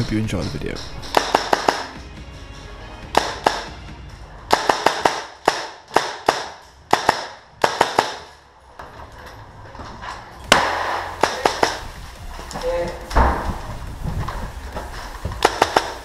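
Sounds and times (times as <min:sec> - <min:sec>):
airsoft rifle shots cracking: 0:01.0 - 0:02.0, 0:03.1 - 0:03.8, 0:04.5 - 0:08.4, 0:10.5 - 0:11.9, 0:15.3 - 0:16.0
loud bang: 0:10.4 - 0:11.9, 0:13.1 - 0:13.9.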